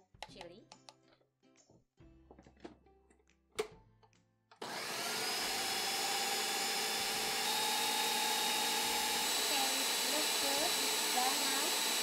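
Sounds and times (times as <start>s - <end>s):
blender motor whining: 4.6s - 12.0s.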